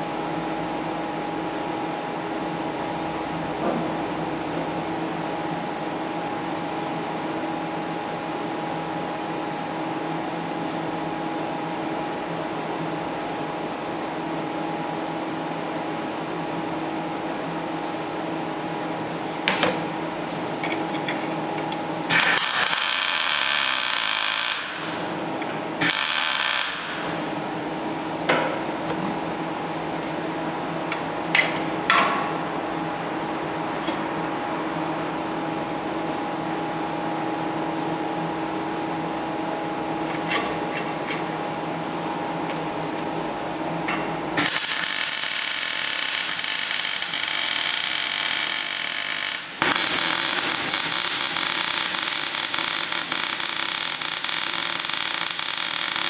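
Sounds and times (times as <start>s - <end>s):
machine hum: 0.0s - 56.0s
welding arc crackling and hissing: 22.1s - 25.2s, 25.8s - 27.3s, 44.4s - 56.0s.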